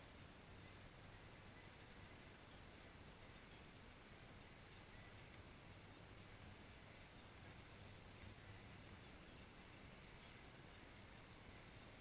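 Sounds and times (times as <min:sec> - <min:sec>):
light high ticks: 0:00.0 - 0:09.6
faint outdoor hiss: 0:00.0 - 0:12.0.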